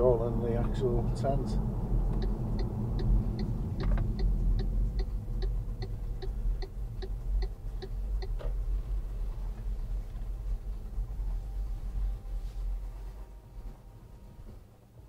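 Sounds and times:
engine and road noise: 0.0 - 15.0
car turn indicator ticking: 2.1 - 8.5.

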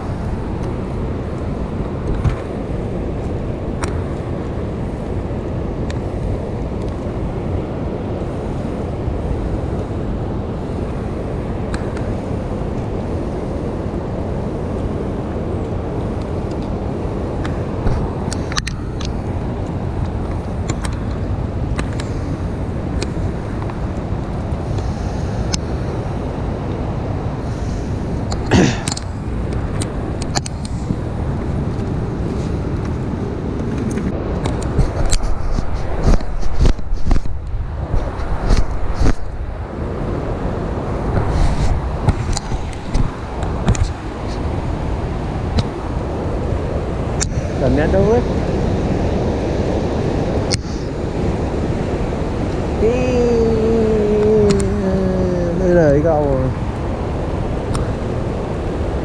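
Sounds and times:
river water rushing: 36.7 - 59.0.

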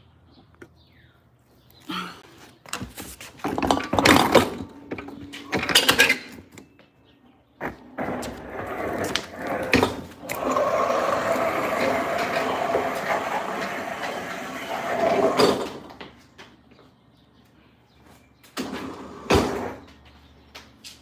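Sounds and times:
casters rolling on concrete: 2.3 - 16.9.

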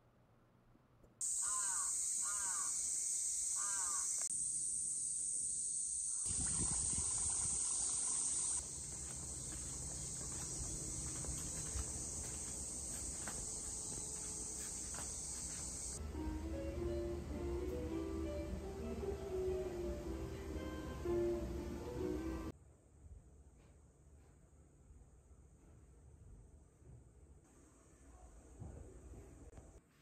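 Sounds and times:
cicadas droning: 1.2 - 16.0
crow cawing: 1.4 - 2.8, 3.6 - 4.2.

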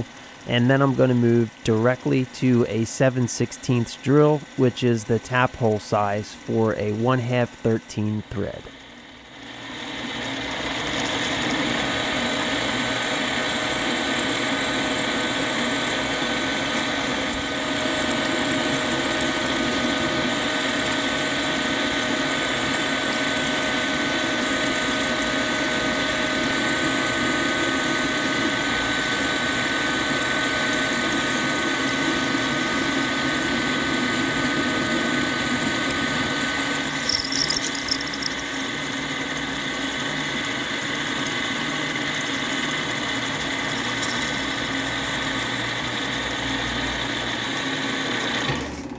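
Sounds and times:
milling machine hum: 0.0 - 48.4
drill cutting metal: 35.9 - 39.5.

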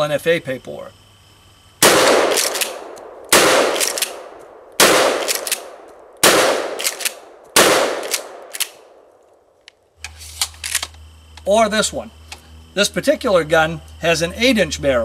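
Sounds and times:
shotgun blasts with echo: 1.8 - 8.9
shotgun pump racking clacks: 2.4 - 2.8, 6.8 - 7.2, 8.0 - 8.8.

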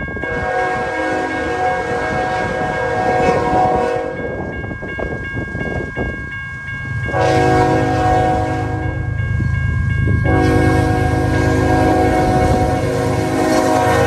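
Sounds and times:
level-crossing bell ringing: 0.0 - 14.0
locomotive engine rumble: 0.0 - 14.0
locomotive horn blasts: 0.3 - 4.3, 7.1 - 9.1, 10.2 - 14.0.

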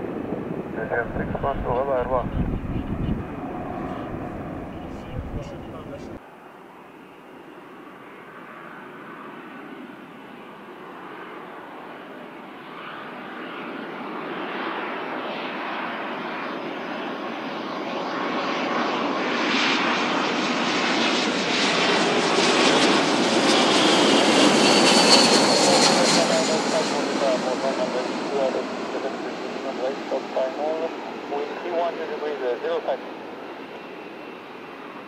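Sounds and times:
jet engine rumble: 0.0 - 6.2, 18.8 - 35.0
high fan whine: 0.0 - 7.9.

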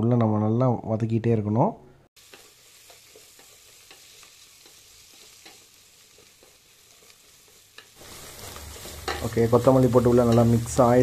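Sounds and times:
food sizzling in oil: 2.2 - 11.0
wooden spatula scraping and tapping: 2.3 - 10.8.

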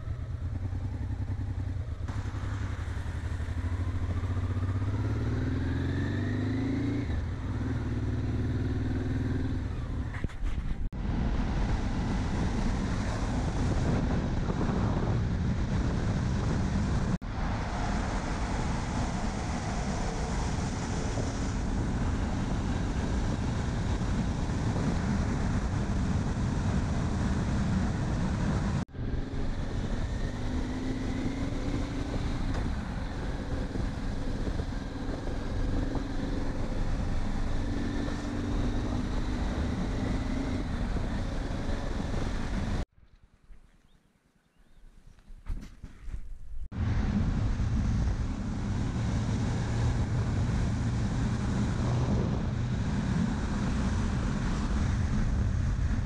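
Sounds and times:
motorcycle engine drone: 0.0 - 42.9, 46.0 - 56.0
wind noise on microphone: 9.3 - 42.9, 45.1 - 56.0.

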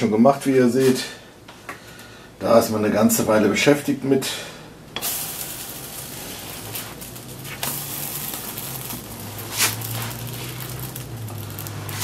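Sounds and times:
batter sizzling in a pan: 5.0 - 12.0
spatula scrape and slap: 8.9 - 12.0.

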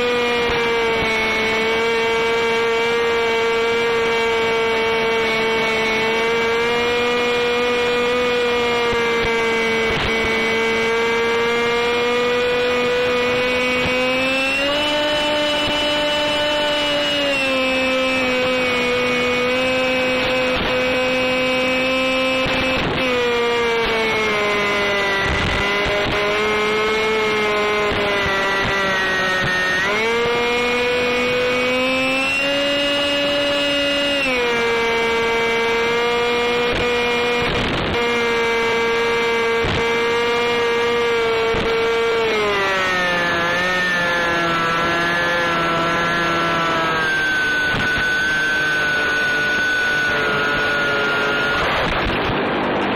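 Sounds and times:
motor and propeller whine: 0.0 - 52.9
radio crackles: 51.5 - 52.9.

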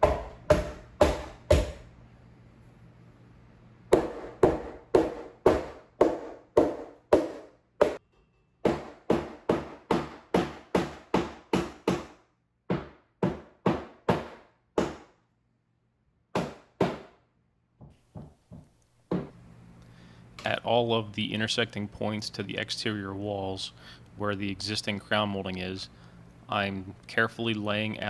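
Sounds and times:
sharp knocks: 8.6 - 15.1.

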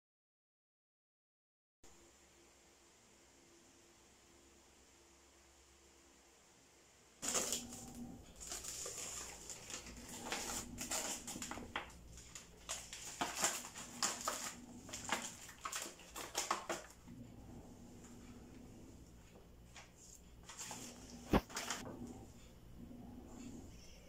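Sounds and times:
faint steady hum: 1.9 - 24.0
knife slitting plastic: 7.2 - 16.9
plastic packaging crinkling: 7.2 - 17.0, 20.4 - 21.8.

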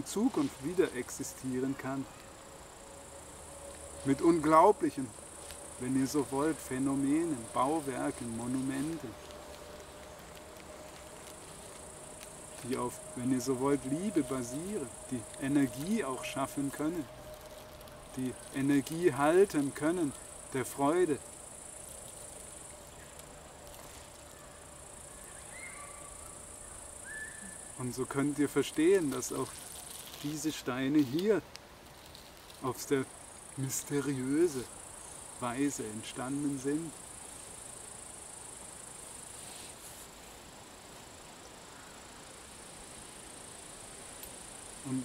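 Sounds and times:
faint high buzz: 0.0 - 31.4
crickets chirring: 0.0 - 45.0.

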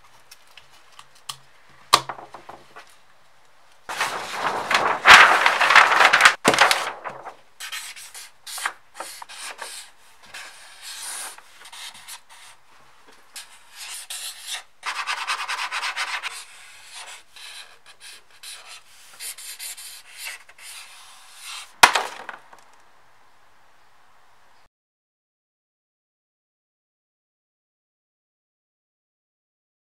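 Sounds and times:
marker writing on paper: 7.6 - 12.6, 13.4 - 21.6.

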